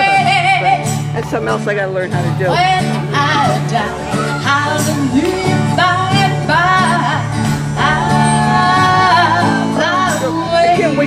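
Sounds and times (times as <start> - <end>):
strummed acoustic guitars: 0.0 - 11.0
person singing: 2.5 - 11.0.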